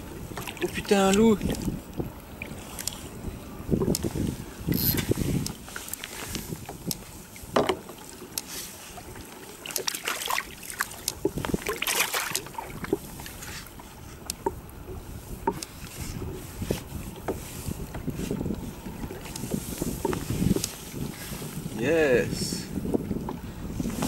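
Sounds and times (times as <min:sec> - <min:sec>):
sea water splashing: 0:00.0 - 0:22.4.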